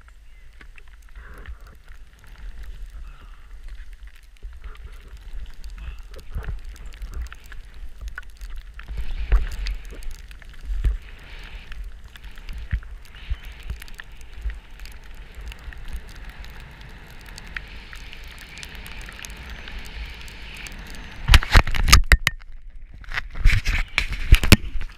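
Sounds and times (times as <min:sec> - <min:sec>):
skis scraping over snow: 0:04.4 - 0:21.6.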